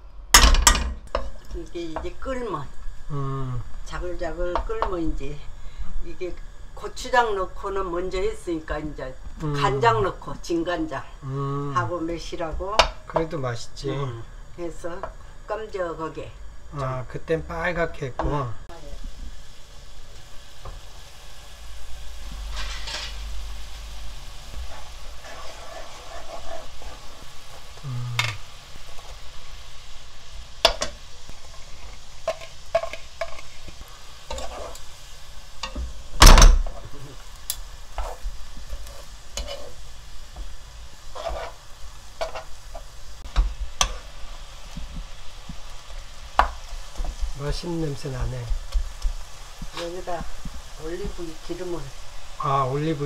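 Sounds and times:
glaze sizzling in wok: 0:00.0 - 0:53.0
utensils scraping pan: 0:22.4 - 0:23.3, 0:24.6 - 0:27.6, 0:30.7 - 0:34.9, 0:37.9 - 0:39.8, 0:41.1 - 0:44.1.

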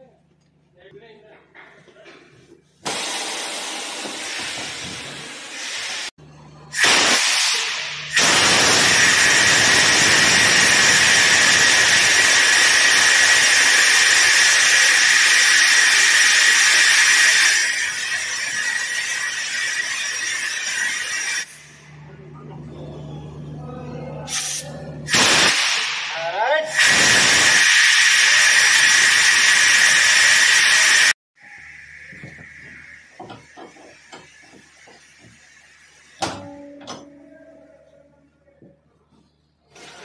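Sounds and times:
compressed air hissing from brake valve: 0:06.8 - 0:21.5, 0:24.3 - 0:26.0, 0:26.8 - 0:36.5.

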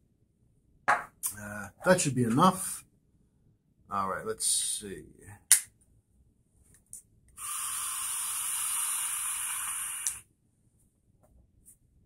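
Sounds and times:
sharp click: 0:05.5 - 0:05.7
airy hiss of vaping draw: 0:07.4 - 0:10.3.

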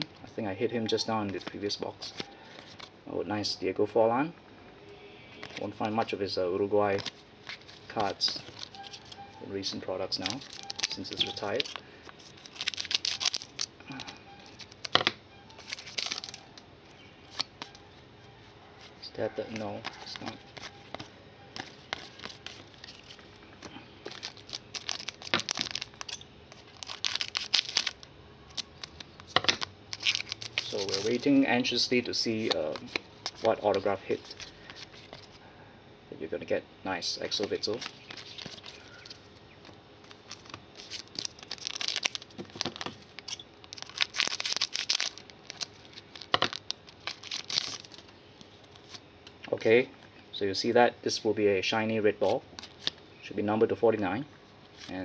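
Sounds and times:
foil wrapper crinkling: 0:00.9 - 0:02.9, 0:06.8 - 0:17.9, 0:18.8 - 0:35.4, 0:37.2 - 0:49.0, 0:52.2 - 0:53.0.

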